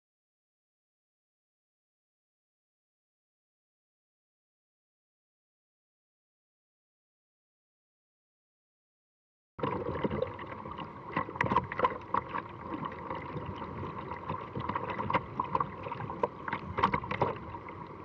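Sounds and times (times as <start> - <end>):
water splashing against kayak: 9.6 - 18.0.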